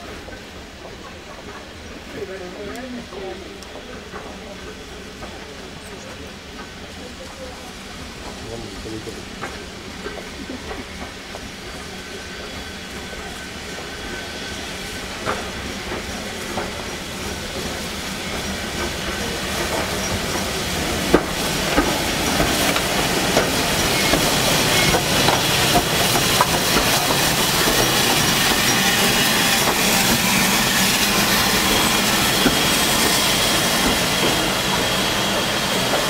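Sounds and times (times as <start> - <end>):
steam hissing: 0.0 - 36.0.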